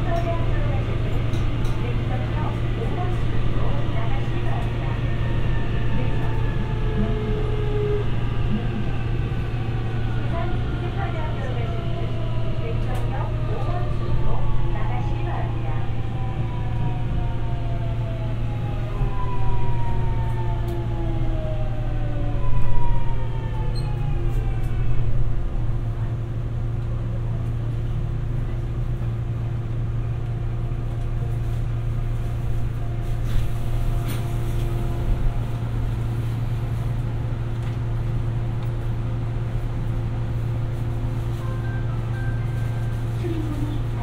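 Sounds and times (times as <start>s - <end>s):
subway car equipment hum: 0.0s - 44.0s
subway motor whine: 0.0s - 44.0s.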